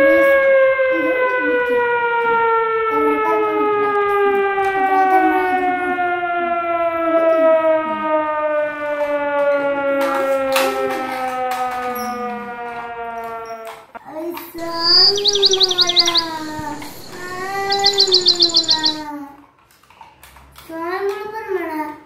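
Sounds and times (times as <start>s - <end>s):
siren sliding down in pitch: 14.6s - 19.1s.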